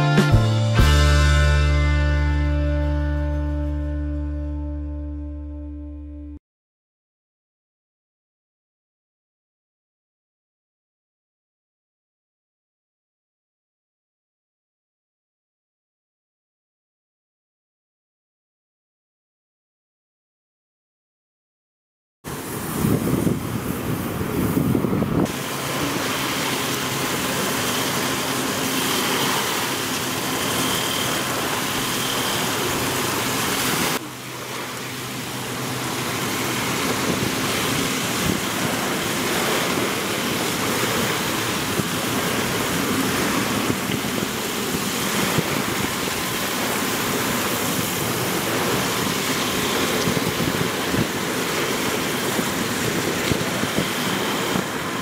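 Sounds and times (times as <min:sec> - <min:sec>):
waves washing onto pebbles: 0:22.3 - 0:55.0
wind noise on microphone: 0:22.3 - 0:55.0.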